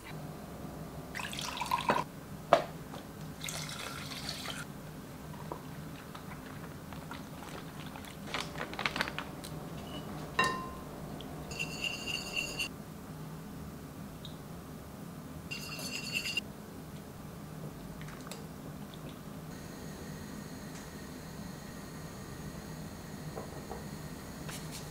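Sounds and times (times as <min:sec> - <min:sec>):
whisk stirring liquid in glass bowl: 0:11.5 - 0:12.7, 0:15.5 - 0:16.4.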